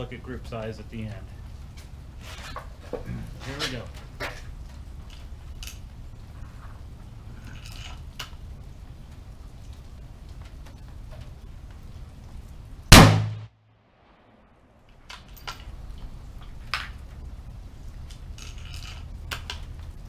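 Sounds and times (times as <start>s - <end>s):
loud rifle shot: 12.9s - 14.4s
rifle bolt clicks and clatter: 14.9s - 17.0s, 18.0s - 19.9s.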